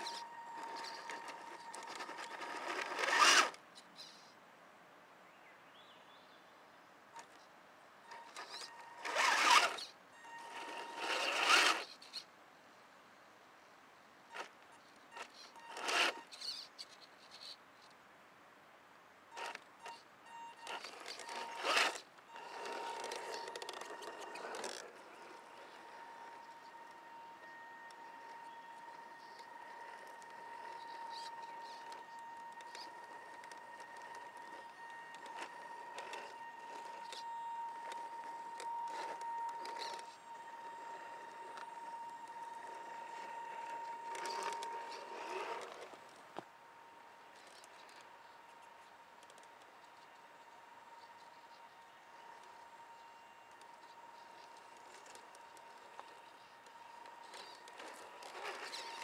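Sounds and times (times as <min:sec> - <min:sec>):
electric motor whining: 0:00.0 - 0:03.6, 0:08.1 - 0:12.2, 0:15.2 - 0:16.6, 0:19.4 - 0:46.2, 0:49.3 - 0:59.0.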